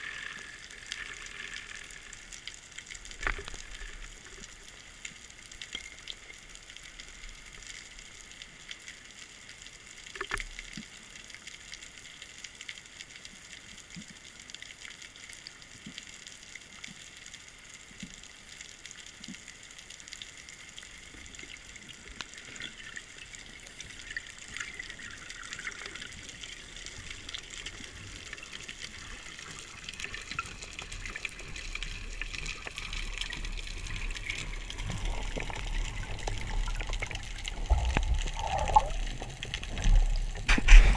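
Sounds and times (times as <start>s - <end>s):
small crackling clicks: 0.0s - 40.9s
sloshing water movement: 21.0s - 40.9s
underwater watery hiss: 34.3s - 40.9s.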